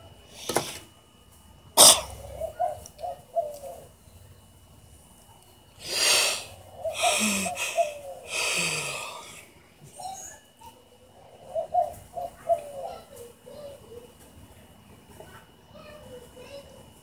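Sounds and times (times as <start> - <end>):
woman yawning: 7.0 - 9.4.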